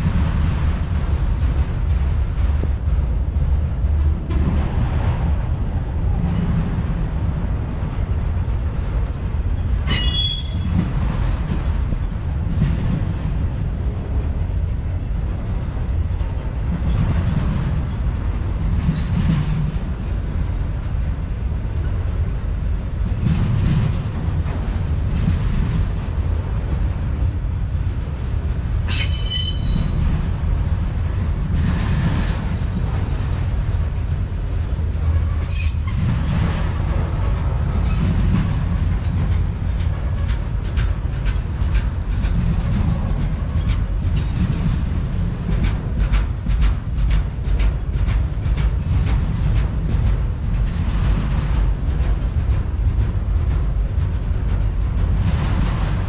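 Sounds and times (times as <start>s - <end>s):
freight cars rumbling on rails: 0.0s - 56.0s
high-pitched wheel squeals: 9.9s - 11.0s, 18.9s - 19.2s, 28.9s - 30.0s, 35.4s - 36.0s.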